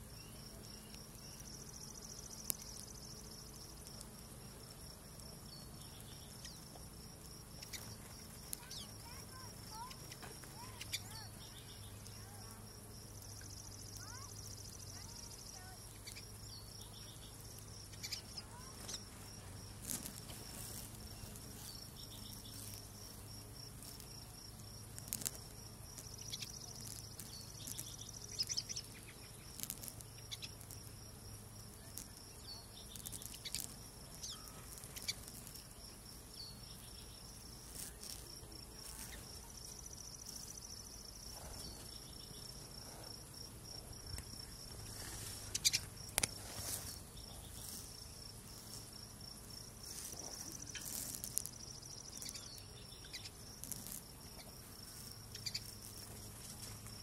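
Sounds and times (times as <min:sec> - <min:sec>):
insect trill: 0:00.0 - 0:57.0
bird chirps: 0:07.6 - 0:12.3, 0:14.0 - 0:19.1, 0:45.4 - 0:45.9, 0:52.0 - 0:53.4, 0:55.3 - 0:55.8.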